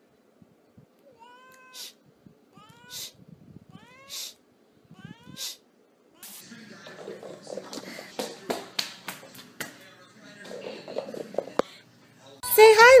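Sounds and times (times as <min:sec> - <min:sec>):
cat meowing: 0:01.1 - 0:02.0, 0:02.6 - 0:05.6.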